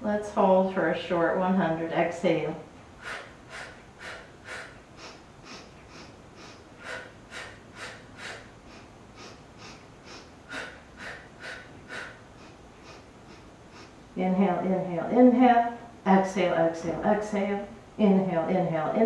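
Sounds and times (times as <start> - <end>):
woman breathing rhythmically: 2.7 - 14.2.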